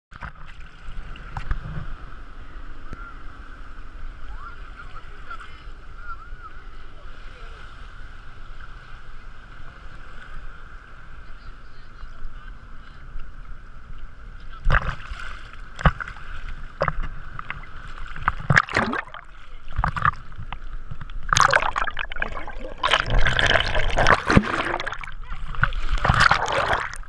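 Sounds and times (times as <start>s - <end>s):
churning water rush: 0.1s - 27.0s
muffled water sloshing: 13.4s - 27.0s
sharp splashes: 14.6s - 20.3s, 21.3s - 27.0s.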